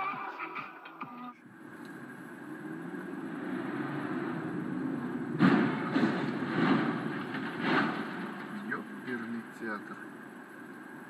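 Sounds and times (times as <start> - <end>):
road and engine noise inside car: 0.0 - 11.0
thumps and scraping of rolling vehicle: 0.0 - 11.0
vehicle crash impact: 2.5 - 11.0.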